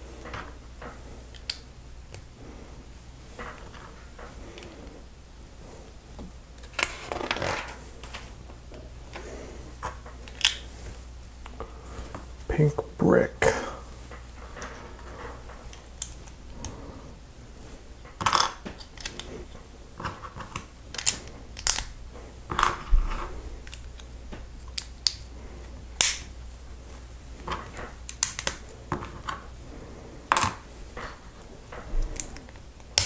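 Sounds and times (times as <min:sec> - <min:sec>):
plastic bricks clicking together: 0:20.0 - 0:21.9.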